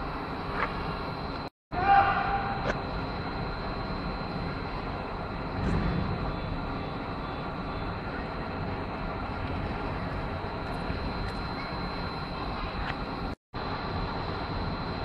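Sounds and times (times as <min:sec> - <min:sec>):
thin high whine: 0:00.0 - 0:15.0
rumbling hiss of indoor arena: 0:02.0 - 0:11.3.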